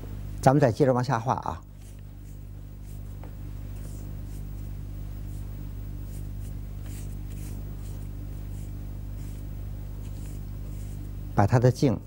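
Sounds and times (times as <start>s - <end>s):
steady low hum: 0.0s - 12.0s
paint brush swishing on paper: 1.6s - 11.2s.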